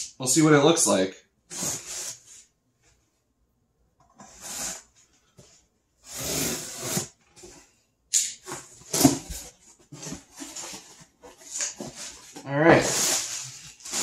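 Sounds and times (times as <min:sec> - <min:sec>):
cardboard scrapes and knocks: 0:06.0 - 0:07.6.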